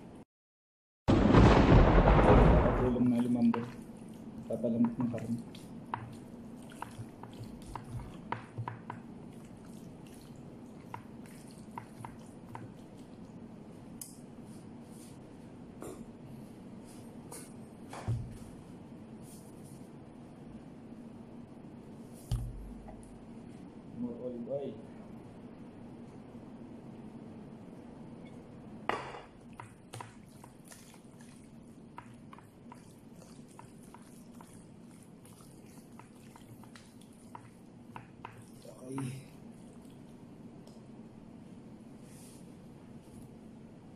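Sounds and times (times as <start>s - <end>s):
background hum: 1.1s - 43.9s
hands kneading wet meat: 2.9s - 15.3s, 29.4s - 43.4s
wet squishes of meat in foil: 30.1s - 37.8s.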